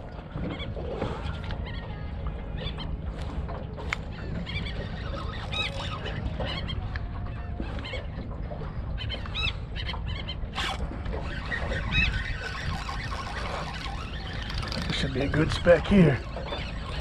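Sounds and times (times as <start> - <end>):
seabirds calling: 0.0 - 17.0
wind rumble on microphone: 0.0 - 17.0.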